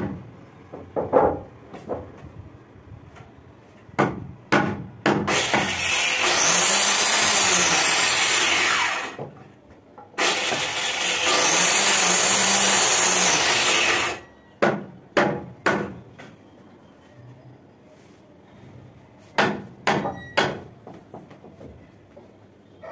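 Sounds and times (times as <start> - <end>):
electric planer on wood: 5.3 - 9.2, 10.2 - 14.2.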